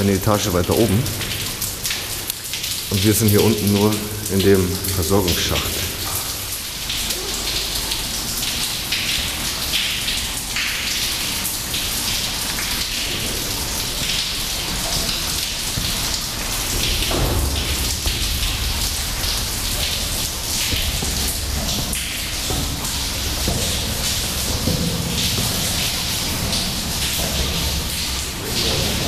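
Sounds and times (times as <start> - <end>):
footsteps on steel stairs: 12.7 - 28.8.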